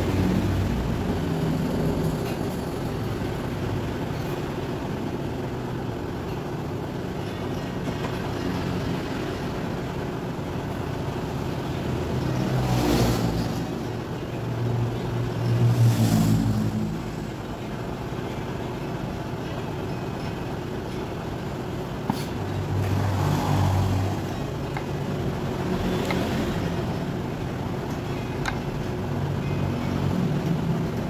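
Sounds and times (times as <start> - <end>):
steady background hum: 0.0 - 31.0
passing vehicle engines: 8.3 - 18.3, 21.4 - 31.0.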